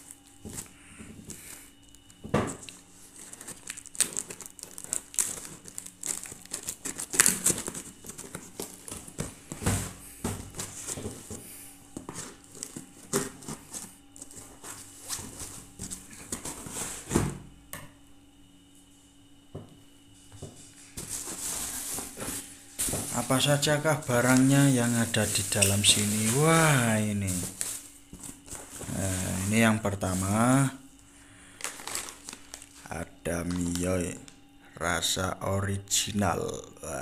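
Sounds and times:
cardboard and tape tearing: 0:03.1 - 0:09.3.

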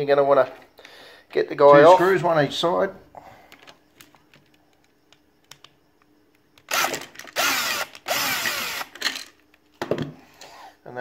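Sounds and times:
cordless power drill running: 0:06.7 - 0:09.0.

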